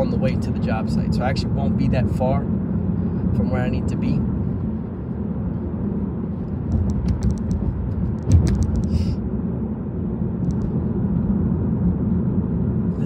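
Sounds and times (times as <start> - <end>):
car road and engine rumble: 0.0 - 13.0
thump: 6.7 - 9.0.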